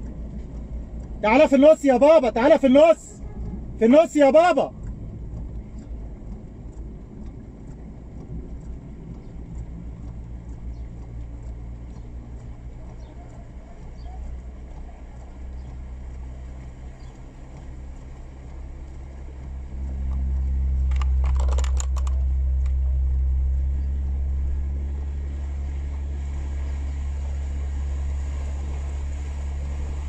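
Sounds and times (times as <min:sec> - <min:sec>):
vehicle engine droning: 0:00.0 - 0:30.0
clatter of clicks: 0:20.1 - 0:22.8.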